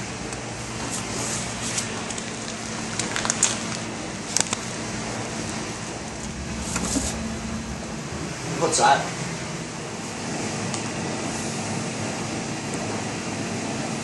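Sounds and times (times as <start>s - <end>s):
plastic packaging crinkling: 3.0s - 4.6s
steady low hum: 5.2s - 10.6s.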